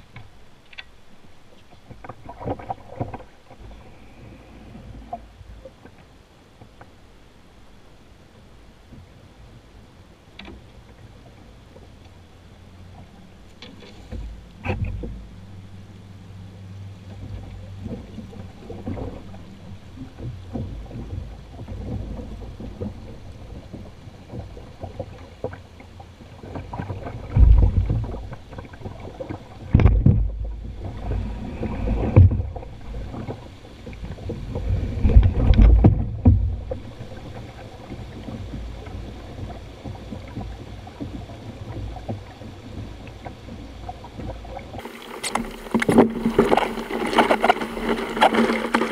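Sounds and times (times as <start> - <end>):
river water rushing over rocks: 44.8 - 48.9.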